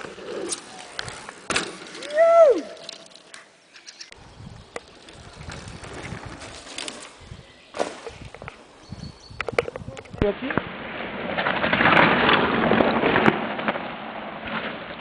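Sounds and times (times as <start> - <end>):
loud whooping shout: 2.1 - 2.8.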